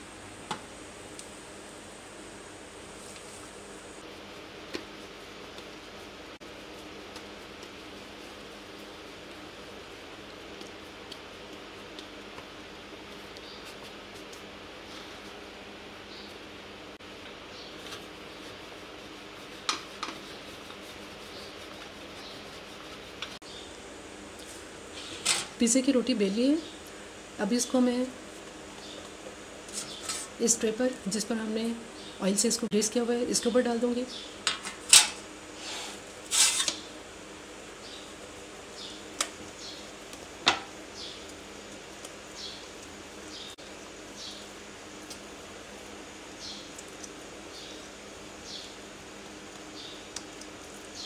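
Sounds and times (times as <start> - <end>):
steady background hum: 0.0 - 51.0
hands rubbing dough: 2.8 - 15.6, 17.7 - 23.4.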